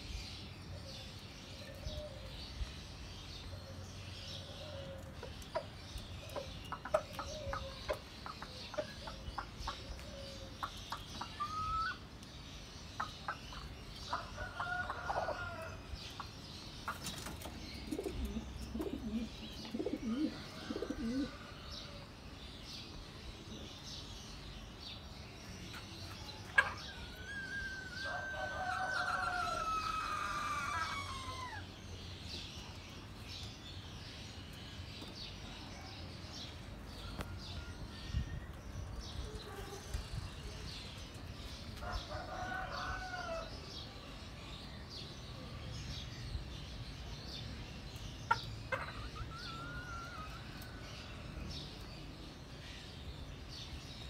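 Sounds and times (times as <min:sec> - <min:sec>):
chickens clucking and calling: 0:03.7 - 0:12.2, 0:12.9 - 0:22.2, 0:25.7 - 0:32.0, 0:48.1 - 0:53.5.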